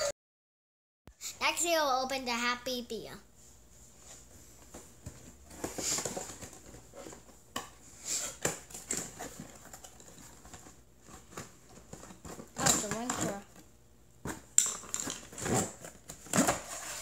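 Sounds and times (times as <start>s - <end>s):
cardboard scraping and rustling: 15.3s - 17.0s.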